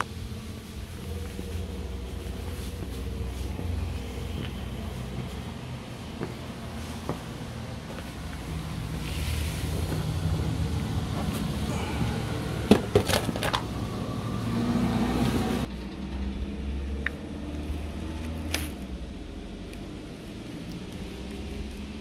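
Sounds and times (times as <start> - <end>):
box and contents clattering: 12.7 - 13.7.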